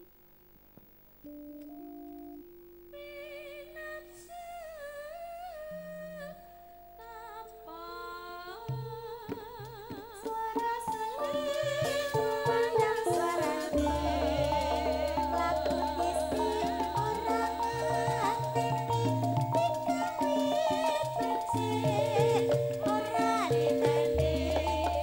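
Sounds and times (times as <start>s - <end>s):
held keyboard notes: 1.2s - 25.0s
drum strokes: 8.7s - 25.0s
wavering melody: 10.6s - 25.0s
band playing: 10.8s - 25.0s
low bass: 13.7s - 19.8s.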